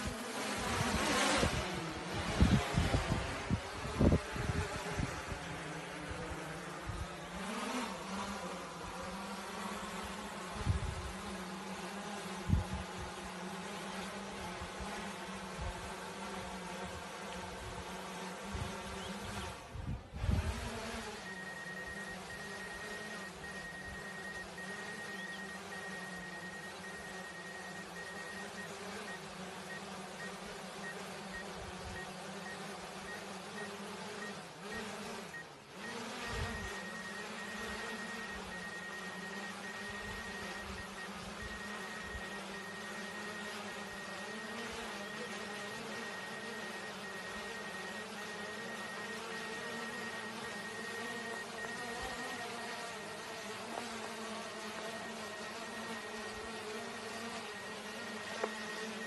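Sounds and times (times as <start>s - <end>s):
drone propellers buzzing: 0.0s - 59.0s
constant hiss: 20.5s - 59.0s
faint high beep: 21.2s - 53.2s, 54.8s - 59.0s.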